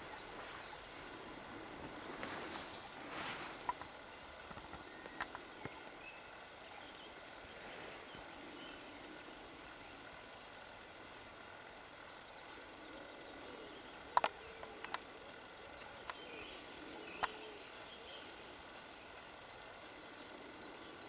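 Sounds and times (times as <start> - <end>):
faint outdoor background: 0.0 - 21.0
sharp clicks and snaps: 14.2 - 15.0.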